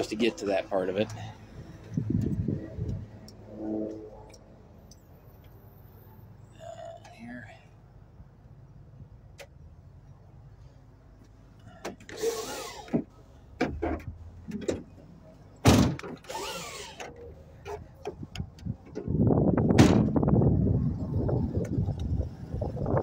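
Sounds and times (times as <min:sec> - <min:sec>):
wind buffeting microphone: 0:01.6 - 0:03.2, 0:18.1 - 0:23.0.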